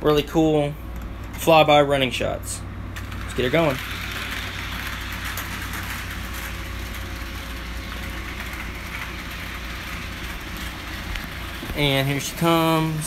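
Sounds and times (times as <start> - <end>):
low hum: 0.8 - 13.0
wheels rumbling on rails: 2.9 - 13.0
model train motor whirr: 3.0 - 13.0.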